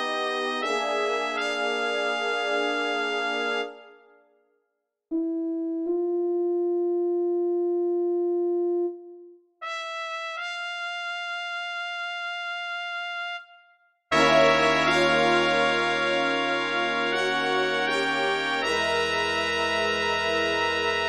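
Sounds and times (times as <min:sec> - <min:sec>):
bright high brass note: 0:14.1 - 0:21.0
soft sustained brass note: 0:14.1 - 0:21.0.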